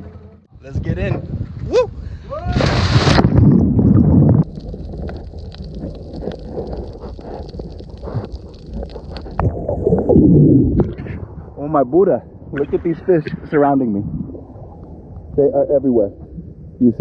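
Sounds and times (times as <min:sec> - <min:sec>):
person splashing into water: 0:02.4 - 0:06.8
churning water and bubbles: 0:02.6 - 0:17.0.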